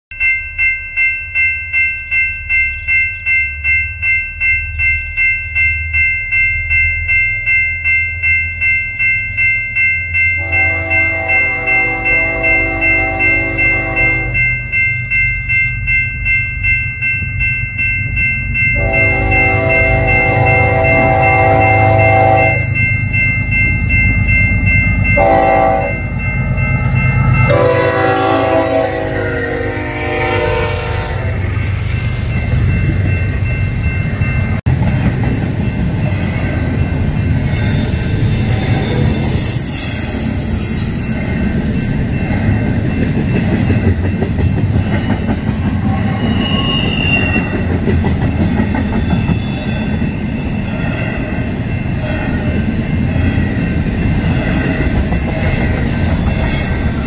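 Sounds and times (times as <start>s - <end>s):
railroad crossing bell ringing: 0.1s - 57.0s
low rumble of passing locomotives: 0.2s - 57.0s
locomotive air horn: 10.4s - 14.4s, 18.8s - 22.7s, 25.2s - 26.0s, 27.5s - 31.4s.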